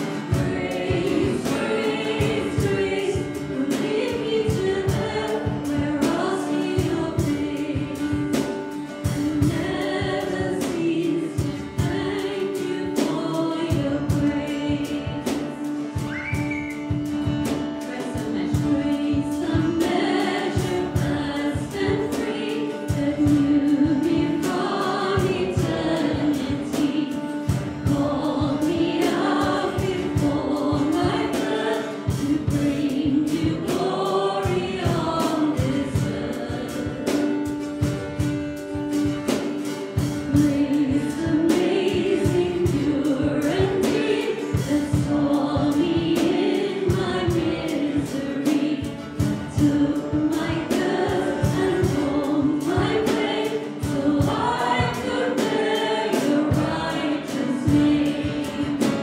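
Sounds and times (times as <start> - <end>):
man and woman singing: 0.0 - 37.9, 40.0 - 59.0
acoustic guitar strumming: 0.0 - 59.0.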